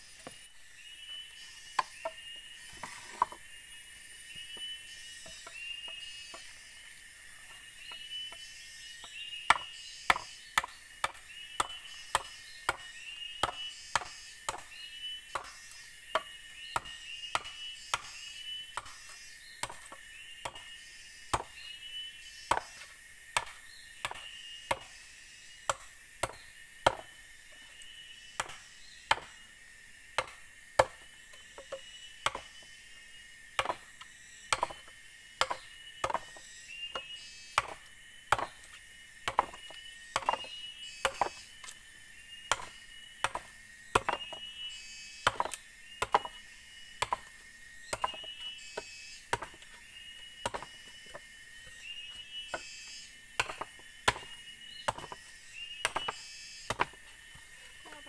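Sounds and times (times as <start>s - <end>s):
machete chopping bamboo: 7.9s - 21.8s, 22.4s - 25.0s, 25.6s - 27.2s, 28.3s - 29.4s, 30.1s - 32.7s, 33.5s - 41.8s, 42.4s - 44.5s, 45.2s - 46.4s, 47.0s - 51.2s, 53.3s - 57.6s.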